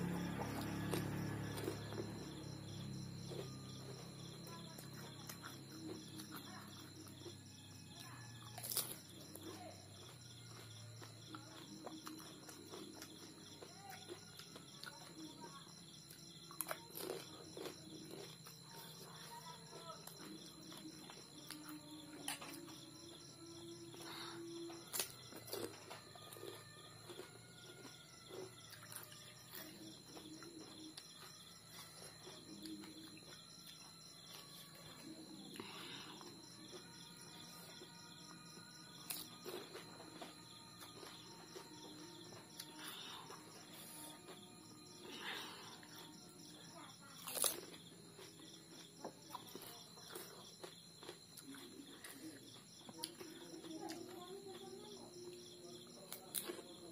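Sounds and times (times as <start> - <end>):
puri shells crunching: 8.6 - 9.0.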